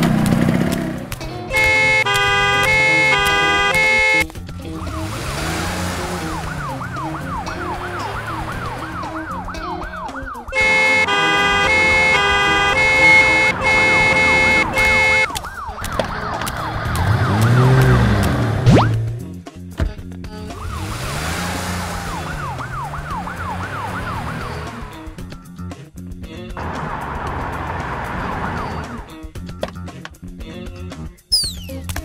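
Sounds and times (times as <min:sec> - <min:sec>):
cartoon car horn honking: 0:01.5 - 0:04.3, 0:10.5 - 0:15.3
ambulance siren wailing: 0:01.6 - 0:18.9, 0:20.4 - 0:25.2.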